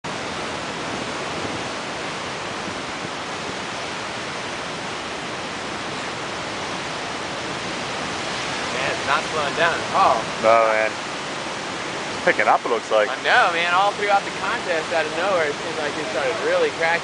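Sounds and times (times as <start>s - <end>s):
ocean waves breaking on rocks: 0.0s - 17.0s.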